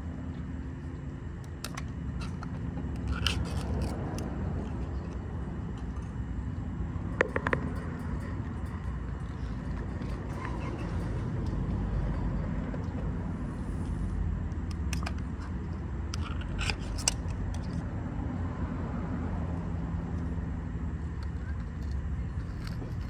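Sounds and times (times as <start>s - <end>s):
low outdoor rumble: 0.0s - 23.0s.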